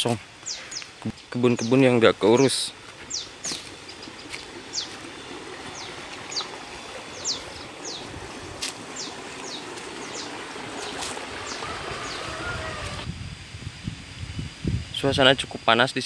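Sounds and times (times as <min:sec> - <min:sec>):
steady rushing noise: 0:02.8 - 0:15.6
small bird chirping: 0:03.0 - 0:08.1, 0:08.9 - 0:13.0.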